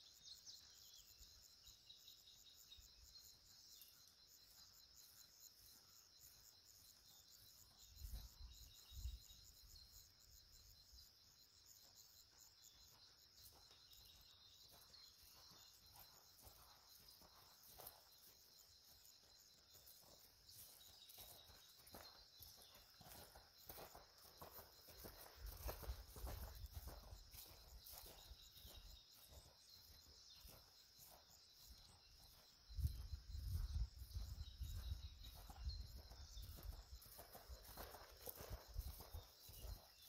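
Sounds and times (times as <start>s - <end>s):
crickets chirring: 0.0s - 40.0s
horse hoofbeats on grass: 12.5s - 40.0s.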